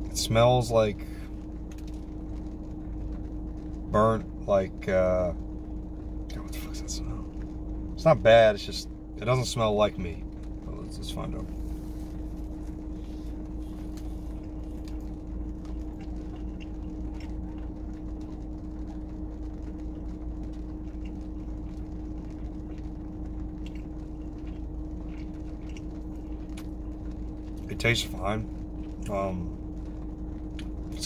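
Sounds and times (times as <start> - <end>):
car cabin hum and rumble: 0.0 - 31.0
chewing clicks: 13.9 - 17.8, 23.6 - 26.8.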